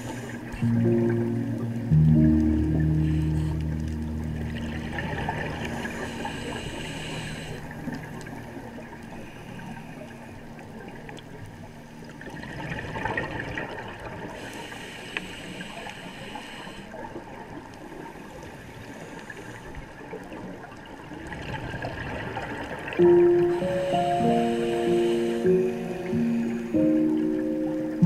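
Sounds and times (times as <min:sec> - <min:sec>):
soft background music: 0:00.1 - 0:13.4, 0:23.0 - 0:28.0
diver breathing through regulator: 0:05.6 - 0:08.0, 0:14.4 - 0:17.0, 0:23.9 - 0:26.0.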